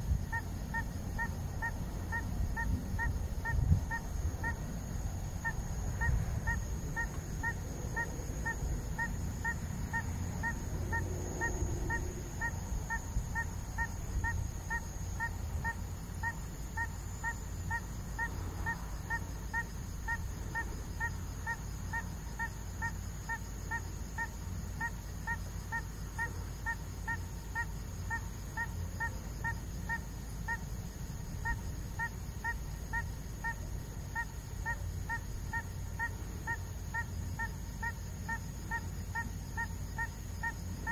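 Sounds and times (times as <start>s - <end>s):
steady low rumble: 0.0s - 19.0s
faint high whine: 0.0s - 40.9s.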